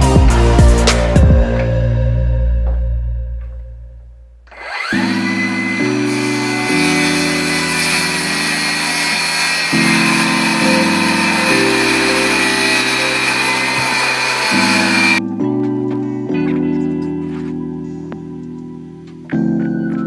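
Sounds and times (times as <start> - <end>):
background music: 0.0 - 20.0
jigsaw cutting wood: 4.5 - 15.2.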